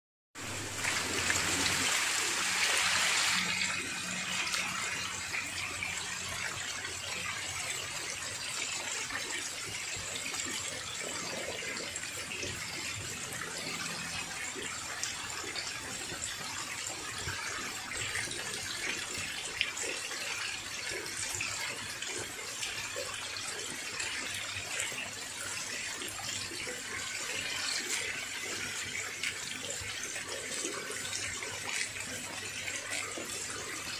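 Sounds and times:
fish splashing at water surface: 0:00.5 - 0:08.3.

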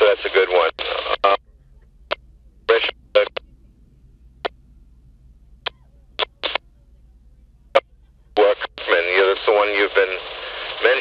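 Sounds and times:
clipped voice over radio: 0:00.0 - 0:01.4, 0:02.7 - 0:03.4, 0:08.4 - 0:11.0
faint low hum: 0:00.0 - 0:11.0
radio squelch bursts: 0:08.4 - 0:11.0.

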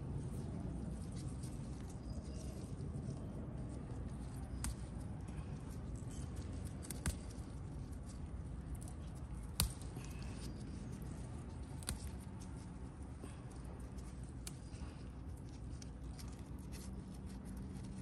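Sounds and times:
steady low rumble: 0:00.0 - 0:18.0
chilli stems snapping: 0:04.2 - 0:12.8, 0:13.4 - 0:16.3.

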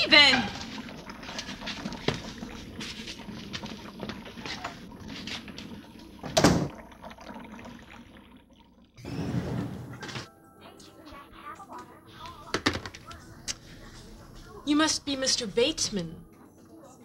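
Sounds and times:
plunger in toilet sloshing: 0:00.0 - 0:09.0.

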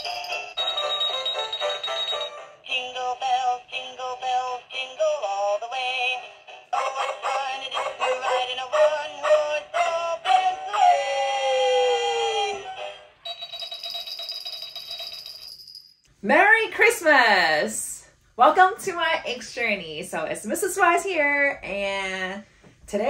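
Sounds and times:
toy singing through small speaker: 0:00.0 - 0:14.0.

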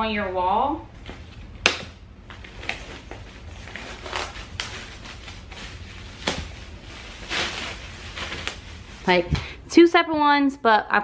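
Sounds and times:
plastic wrap crinkling: 0:02.4 - 0:09.3.

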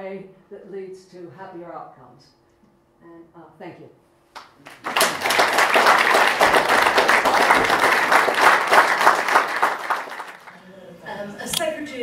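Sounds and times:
audience applause: 0:04.6 - 0:10.6.

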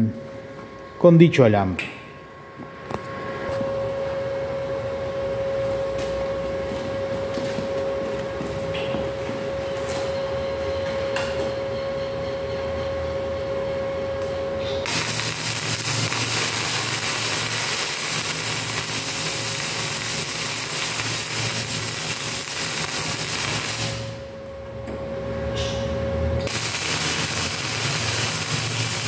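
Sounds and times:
steady hum: 0:00.0 - 0:29.0
welding arc crackling hiss: 0:14.8 - 0:24.3, 0:26.5 - 0:29.0.

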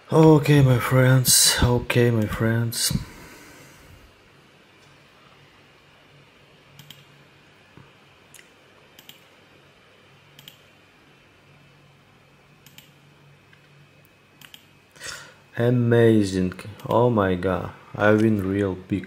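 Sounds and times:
low steady hum: 0:00.0 - 0:19.0
computer mouse clicks: 0:06.8 - 0:07.1, 0:08.3 - 0:09.3, 0:10.4 - 0:10.7, 0:12.6 - 0:14.7.

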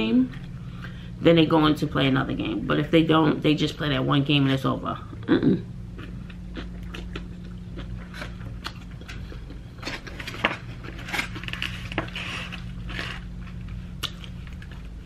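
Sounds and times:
steady low hum: 0:00.0 - 0:15.0
chewing noodles: 0:06.0 - 0:09.9.

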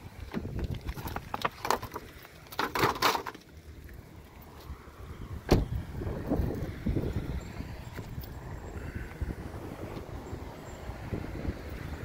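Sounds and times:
handling clicks and knocks: 0:00.3 - 0:03.5
car door shutting: 0:05.4 - 0:05.8.

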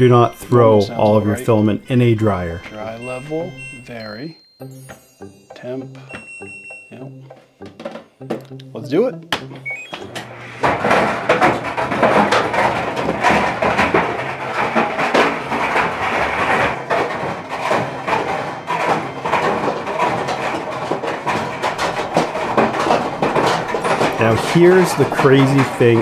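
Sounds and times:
objects clattering in dryer drum: 0:00.0 - 0:03.9, 0:09.4 - 0:26.0
clothes dryer humming: 0:00.0 - 0:04.0, 0:04.6 - 0:26.0.

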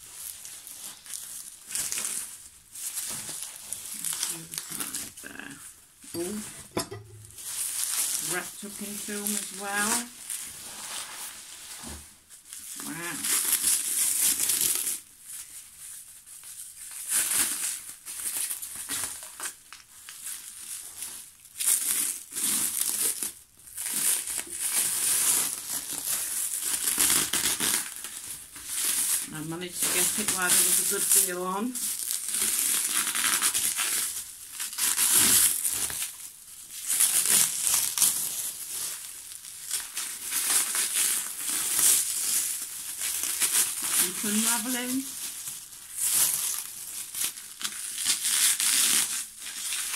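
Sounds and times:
plastic film and bubble wrap crinkling: 0:00.0 - 0:49.9.

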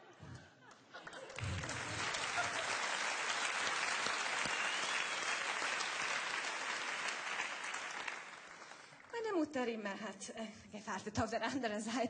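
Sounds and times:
studio audience applauding: 0:01.0 - 0:09.1.

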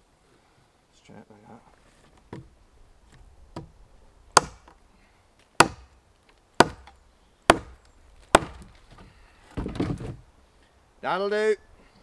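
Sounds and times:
blade chopping into a log: 0:04.4 - 0:04.8, 0:05.6 - 0:05.9, 0:06.6 - 0:08.7.

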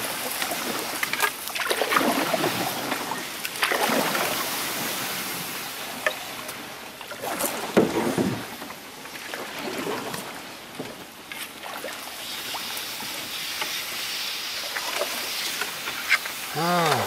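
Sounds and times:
paddle splashing in water: 0:00.0 - 0:17.0
steady hiss: 0:12.1 - 0:17.0.

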